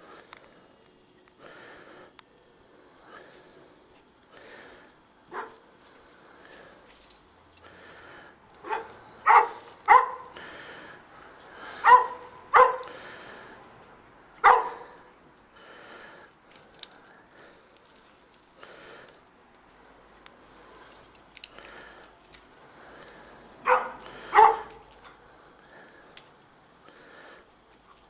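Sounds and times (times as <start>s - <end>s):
dog barking: 5.3s - 5.6s, 8.6s - 10.3s, 11.8s - 13.0s, 14.4s - 15.0s, 23.6s - 24.8s.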